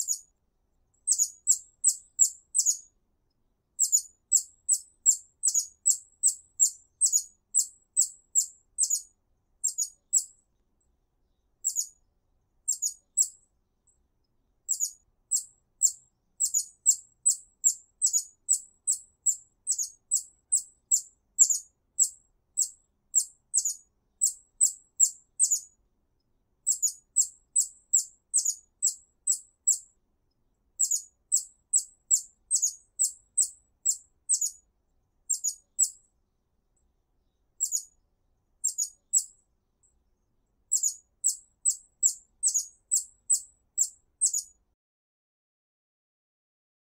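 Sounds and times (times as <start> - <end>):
hummingbird chip calls: 1.1 - 2.8, 3.8 - 9.0, 9.6 - 10.3, 11.6 - 11.9, 12.7 - 13.3, 14.7 - 25.6, 26.7 - 29.8, 30.8 - 34.6, 35.3 - 36.0, 37.6 - 37.9, 38.6 - 39.3, 40.7 - 44.5.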